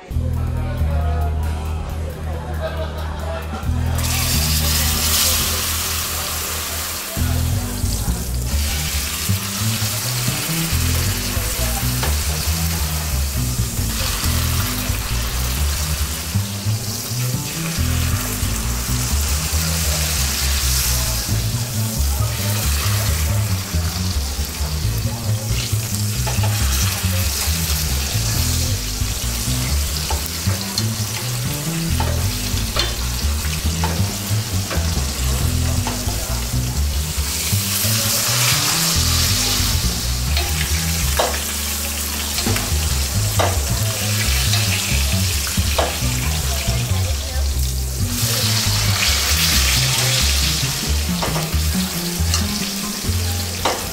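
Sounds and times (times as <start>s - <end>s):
steak sizzling in hot oil: 4.0s - 53.9s.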